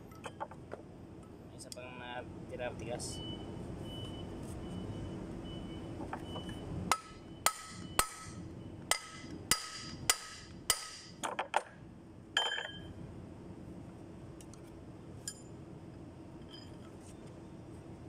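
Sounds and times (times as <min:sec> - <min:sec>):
hammer striking metal: 0:06.9 - 0:11.2.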